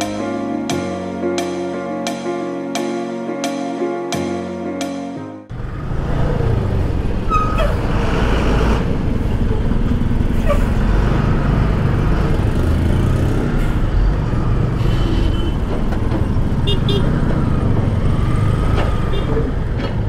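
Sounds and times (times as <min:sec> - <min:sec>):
motorcycle engine low rumble: 0:05.5 - 0:13.1
truck and vehicle engines: 0:05.5 - 0:20.0.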